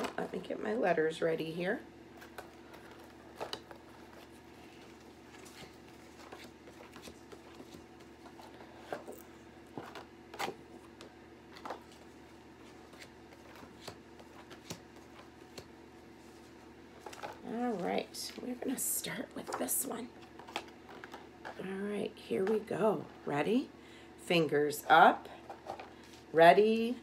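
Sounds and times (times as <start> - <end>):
steady low hum: 0.0 - 27.0
cards rustling and clicking: 2.1 - 18.8, 19.4 - 21.6.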